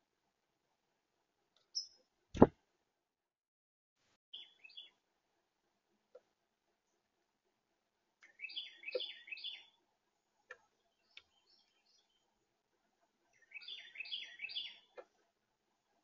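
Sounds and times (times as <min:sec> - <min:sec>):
songbird singing: 0:01.6 - 0:02.5, 0:04.3 - 0:05.0, 0:08.2 - 0:09.8, 0:10.5 - 0:12.4, 0:13.2 - 0:15.2.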